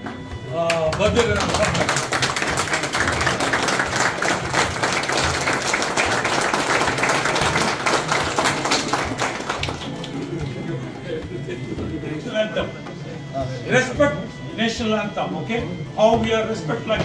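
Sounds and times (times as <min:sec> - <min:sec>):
people clapping in applause: 0:00.7 - 0:11.4.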